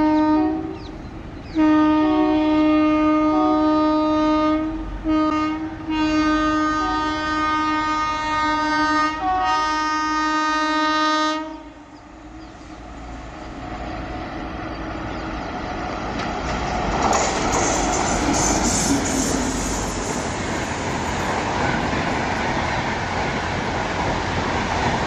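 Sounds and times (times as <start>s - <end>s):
locomotive horn blasts: 0.0s - 0.8s, 1.5s - 11.8s
rumble of approaching train: 0.0s - 25.0s.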